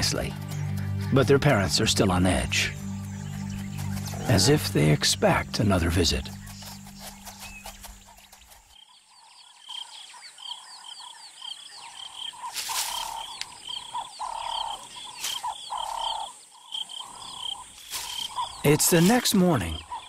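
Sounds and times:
pulsing frog croak: 9.7s - 17.7s.

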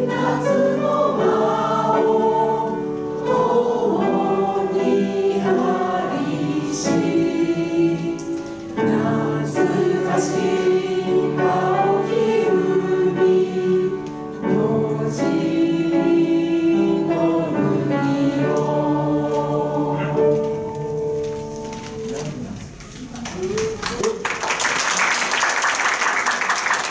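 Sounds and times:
group singing in unison: 0.0s - 21.1s
piano accompaniment: 0.0s - 22.9s.

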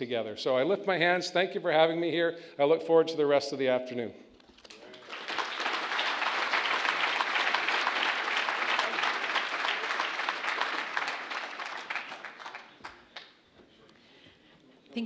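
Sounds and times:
audience applauding: 4.7s - 13.4s.

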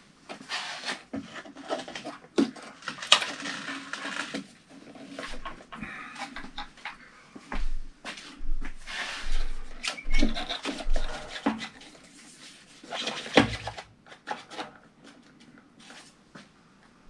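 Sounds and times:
blower assembly rubbing and scraping: 8.8s - 13.8s.

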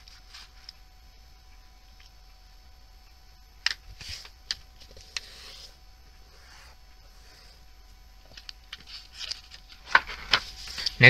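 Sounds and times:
paper rustle: 8.7s - 11.0s.

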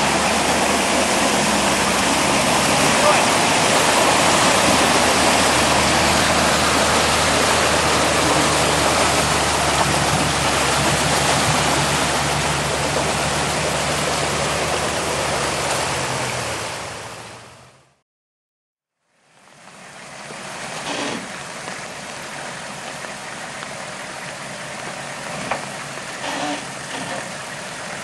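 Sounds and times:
loud rushing noise: 0.0s - 15.5s
engine running low drone: 0.0s - 18.0s, 19.3s - 28.0s.

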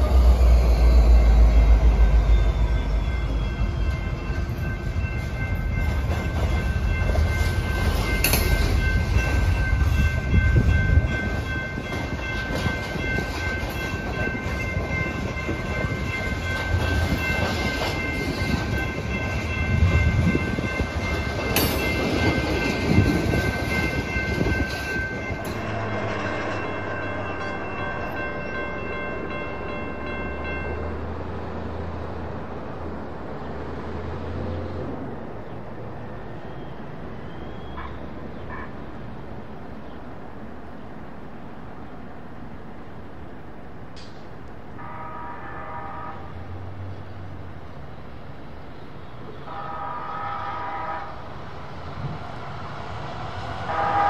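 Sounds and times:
steady high ringing tone: 0.0s - 31.0s
train cars rolling and clattering: 0.0s - 32.8s, 42.8s - 45.9s
diesel locomotive rumble: 0.0s - 35.5s.

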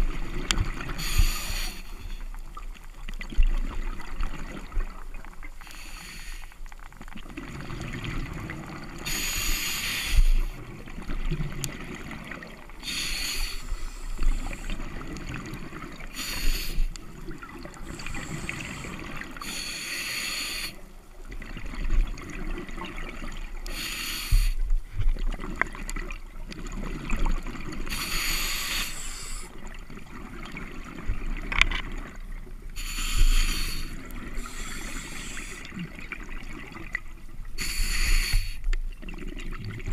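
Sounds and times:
regulator inhale hiss: 0.9s - 2.3s, 5.6s - 6.7s, 9.0s - 10.6s, 12.8s - 14.9s, 16.1s - 17.0s, 17.8s - 20.9s, 23.6s - 24.7s, 27.9s - 29.6s, 32.8s - 35.7s, 37.6s - 38.7s.

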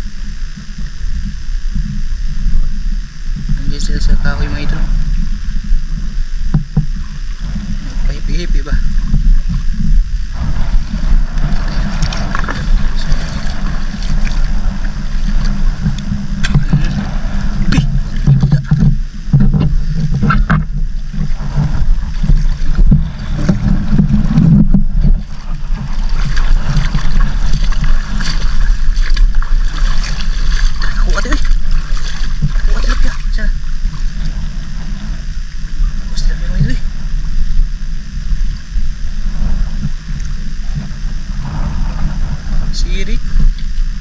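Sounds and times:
steady low rumble: 0.0s - 44.0s
water sloshing around wading legs: 8.9s - 35.6s
short splashes: 21.6s - 33.6s.

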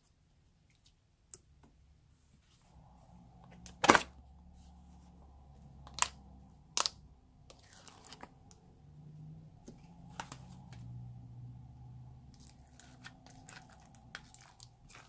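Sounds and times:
slime squelching: 5.4s - 8.7s, 11.8s - 15.0s.

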